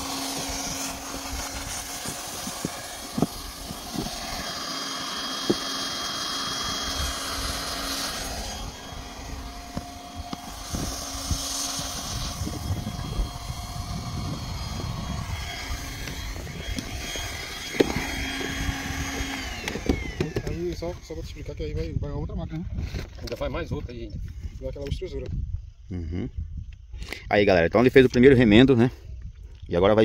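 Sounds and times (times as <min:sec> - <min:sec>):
hot-air welding gun blowing: 0:00.0 - 0:21.2.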